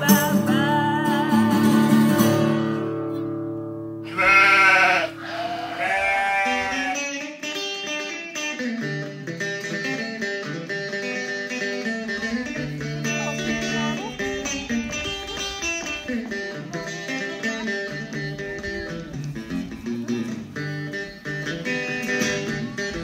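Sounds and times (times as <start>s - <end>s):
acoustic guitar chord ringing: 0.0s - 5.2s, 5.9s - 23.0s
plucked acoustic guitar music: 0.0s - 23.0s
sheep bleating: 4.0s - 7.3s, 12.8s - 14.4s.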